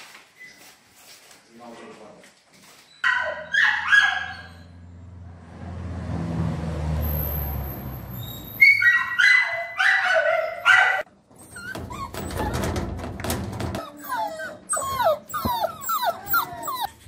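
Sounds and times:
puppies whimpering and yelping: 0:08.1 - 0:12.8, 0:13.7 - 0:17.0.

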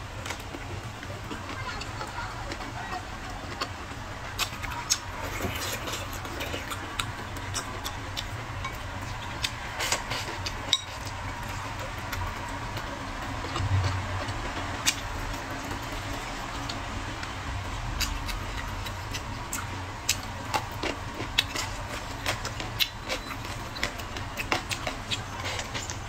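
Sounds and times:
steady low hum: 0:00.0 - 0:26.0
chewing and wet mouth noises: 0:00.2 - 0:26.0.

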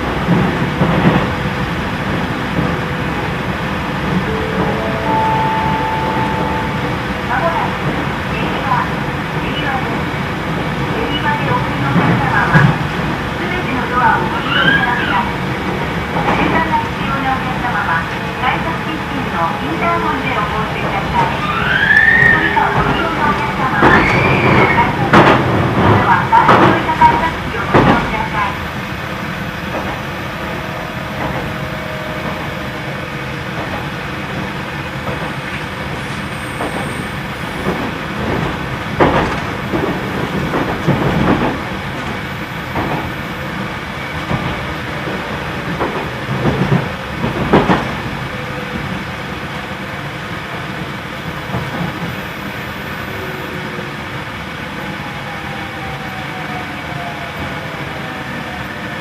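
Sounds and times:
train cabin rumble: 0:22.3 - 0:54.5.

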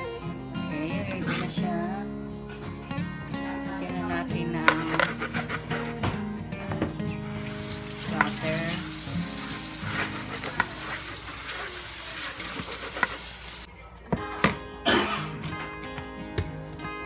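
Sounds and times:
spatula scraping dough in bowl: 0:04.7 - 0:06.0, 0:08.0 - 0:13.7.

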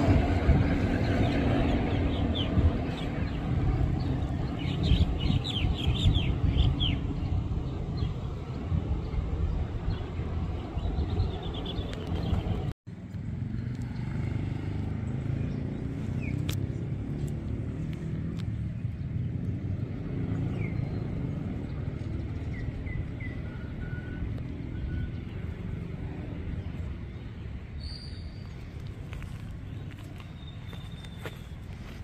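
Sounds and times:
bird chirps: 0:27.1 - 0:28.8, 0:29.7 - 0:32.0.

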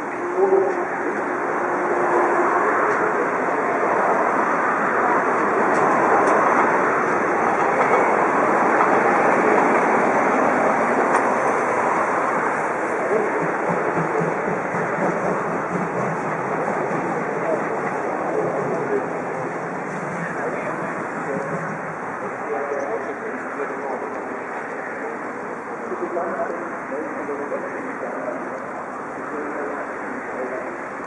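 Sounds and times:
steam locomotive passing: 0:00.0 - 0:31.0.

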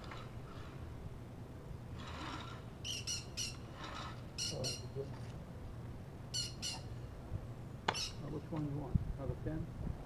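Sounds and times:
bird squawking: 0:02.8 - 0:05.1, 0:06.3 - 0:06.9, 0:07.9 - 0:08.2.

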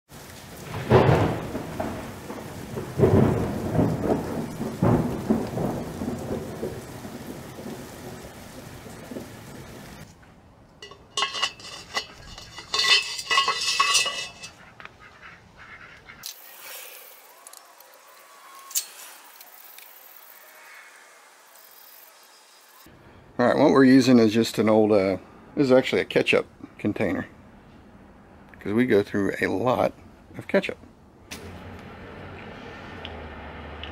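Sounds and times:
rain hiss: 0:00.1 - 0:10.1, 0:16.2 - 0:22.9
rolling thunder: 0:00.5 - 0:10.1
metal parts clinking and rattling: 0:10.8 - 0:14.6.

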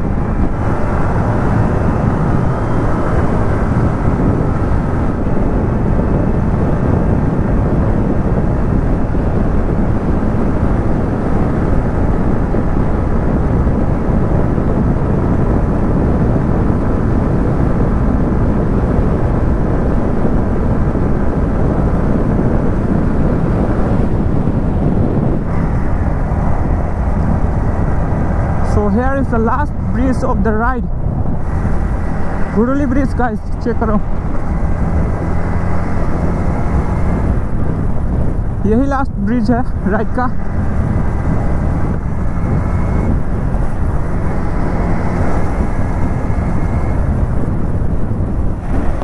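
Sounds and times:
motorcycle engine running: 0:00.0 - 0:49.0
road noise: 0:00.0 - 0:49.0
wind rushing: 0:00.0 - 0:49.0.

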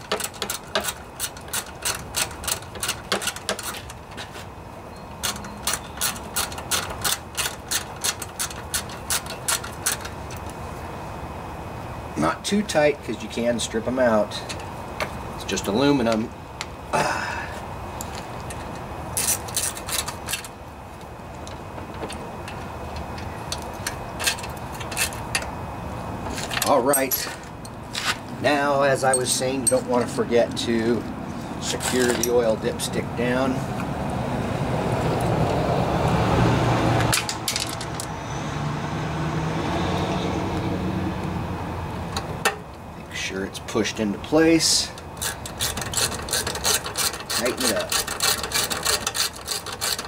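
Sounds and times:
metal clicks and rattles: 0:00.0 - 0:04.2, 0:05.2 - 0:10.6, 0:18.0 - 0:20.6, 0:21.3 - 0:25.5, 0:37.1 - 0:38.1, 0:45.0 - 0:50.0
steady background noise: 0:00.0 - 0:50.0.

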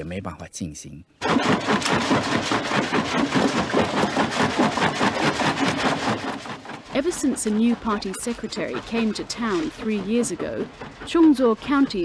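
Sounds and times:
rock cracking in stone crusher: 0:01.2 - 0:07.0.

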